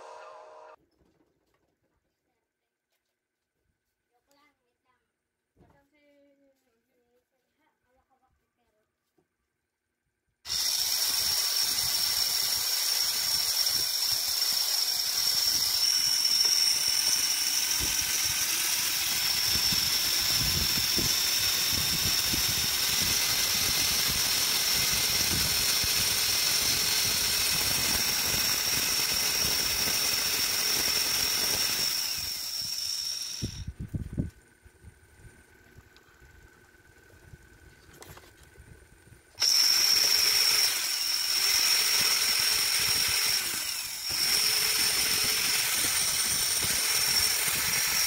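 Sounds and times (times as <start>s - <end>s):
electric motor whining: 10.5s - 34.3s, 39.4s - 48.0s.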